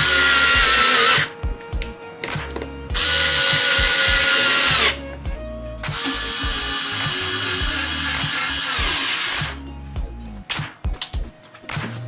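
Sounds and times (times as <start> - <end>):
electric screwdriver motor whine: 0.0 - 1.3, 2.9 - 5.0, 5.9 - 9.6.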